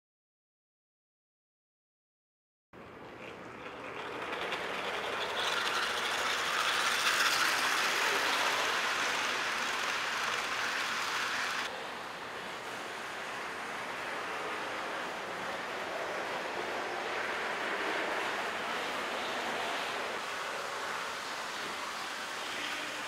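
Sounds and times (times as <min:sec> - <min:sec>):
model train wheels clattering: 0:03.0 - 0:11.7.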